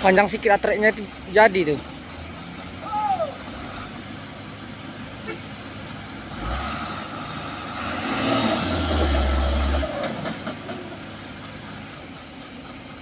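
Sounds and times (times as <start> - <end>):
diesel engines revving hard: 0.0 - 13.0.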